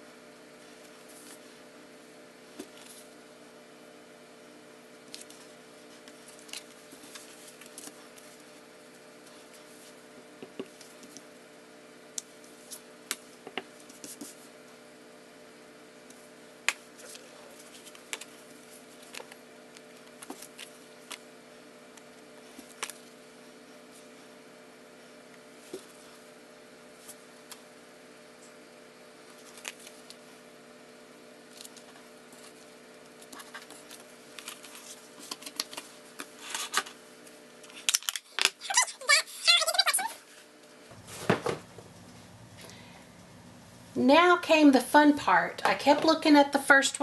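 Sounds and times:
steady low hum: 0:00.0 - 0:39.5, 0:40.1 - 0:47.0.

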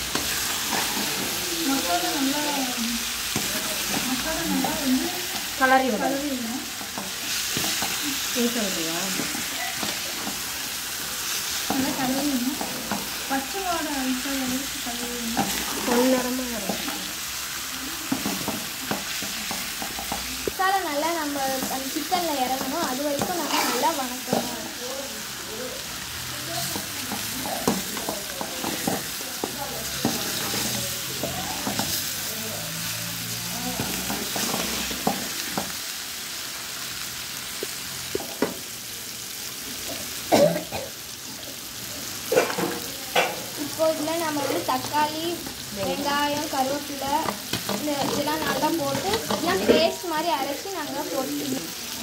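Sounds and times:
food sizzling in pan: 0:00.0 - 0:52.0
metal spatula scraping a pan: 0:00.1 - 0:02.1, 0:21.4 - 0:24.5
spatula scraping metal pan: 0:23.2 - 0:24.5.

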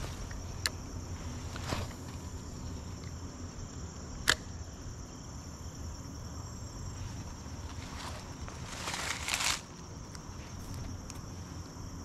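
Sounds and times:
crickets chirping: 0:00.0 - 0:12.0
sharp click: 0:04.2 - 0:04.5.

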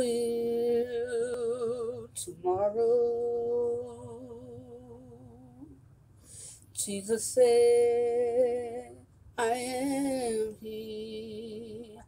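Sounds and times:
person singing unaccompanied: 0:00.0 - 0:05.8, 0:06.7 - 0:12.0
quick breath: 0:06.1 - 0:06.7.

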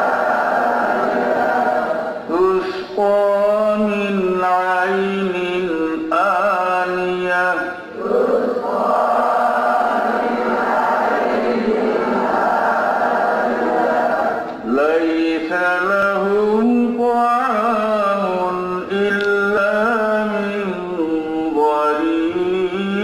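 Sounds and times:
man reciting in melodic chant: 0:02.2 - 0:08.0, 0:14.6 - 0:23.0.

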